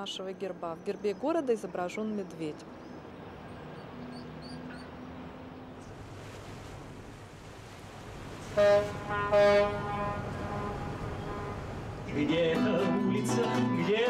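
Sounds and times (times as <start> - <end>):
ship's horn blasts: 8.4 - 12.2.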